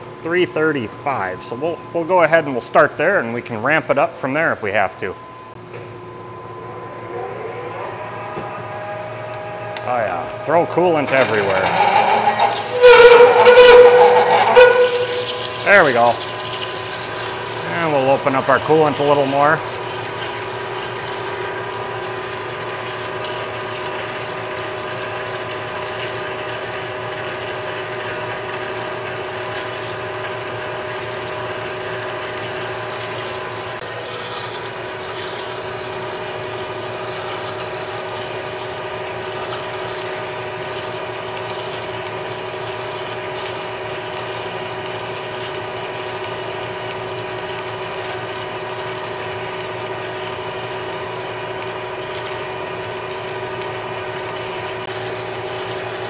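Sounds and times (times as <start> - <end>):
lathe mechanical whine: 5.2 - 26.0.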